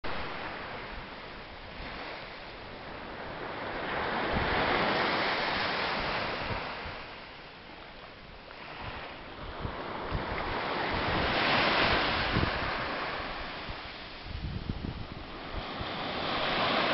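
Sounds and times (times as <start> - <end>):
small waves breaking on beach: 0.1 - 16.9.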